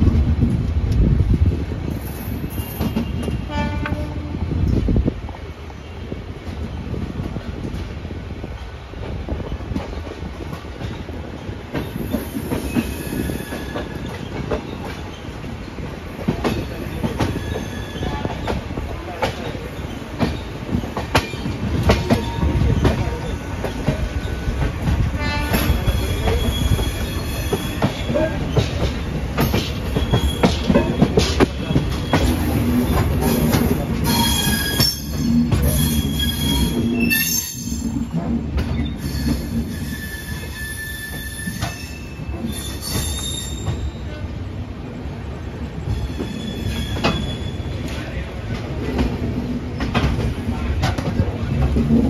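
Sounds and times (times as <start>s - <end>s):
train wheels rumbling on rails: 0.0s - 52.0s
high wheel squeals: 29.9s - 30.7s, 34.0s - 38.0s, 38.7s - 44.0s, 45.9s - 47.9s.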